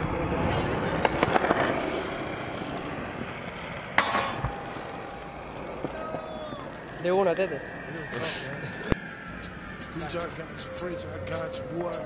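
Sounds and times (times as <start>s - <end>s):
scooter wheels rolling on concrete: 0.0s - 10.4s.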